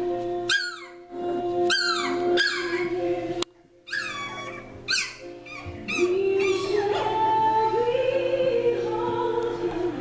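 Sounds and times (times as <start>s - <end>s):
background music with held notes: 0.0s - 10.0s
puppies whining and yelping: 0.5s - 1.0s, 1.7s - 3.0s, 3.9s - 7.2s.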